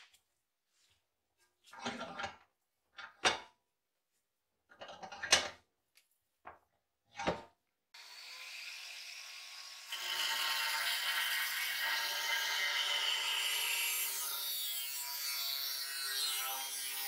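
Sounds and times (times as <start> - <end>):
angle grinder running: 8.0 - 14.4.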